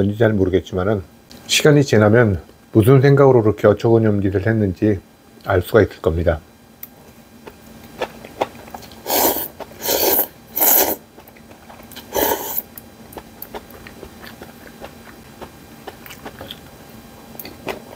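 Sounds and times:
person slurping noodles: 9.0 - 11.0, 12.0 - 12.7
light chewing: 11.2 - 17.9.

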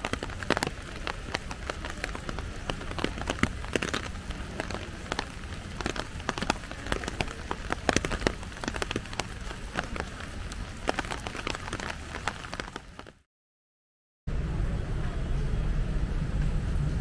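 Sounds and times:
raindrops tapping: 0.0 - 13.2.

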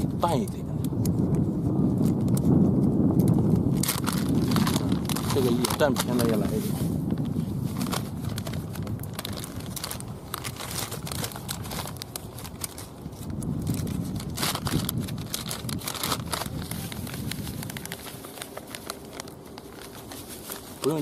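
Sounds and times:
low rumble: 1.0 - 5.8
plastic and foil packets crinkling: 3.6 - 21.0.

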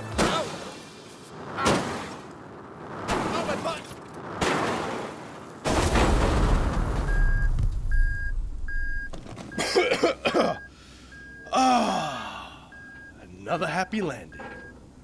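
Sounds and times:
loud rumbling crash: 4.1 - 8.8
electronic warning beep: 7.0 - 9.8, 10.6 - 11.5, 12.6 - 14.8
person coughing: 9.6 - 10.6.

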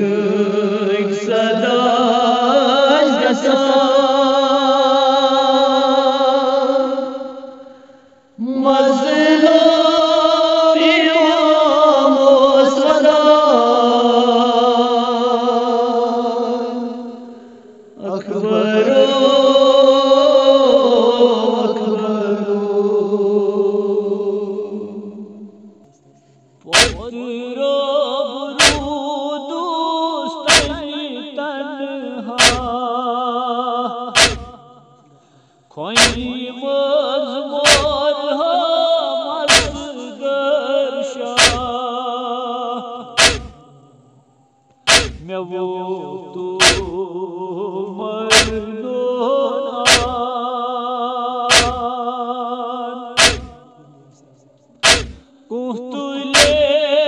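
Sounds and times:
men singing a lament: 0.0 - 7.8, 8.4 - 17.4, 18.0 - 25.3, 26.6 - 44.0, 44.9 - 57.0
chest-beating thumps: 26.8 - 27.1, 28.6 - 29.0, 30.5 - 30.8, 32.4 - 32.8, 34.2 - 34.6, 36.0 - 36.3, 37.7 - 38.0, 39.5 - 39.9, 41.4 - 41.8, 43.2 - 43.6, 44.9 - 45.3, 46.6 - 47.0, 48.3 - 48.7, 49.9 - 50.2, 51.5 - 51.9, 53.2 - 53.6, 54.8 - 55.2, 56.4 - 56.7.

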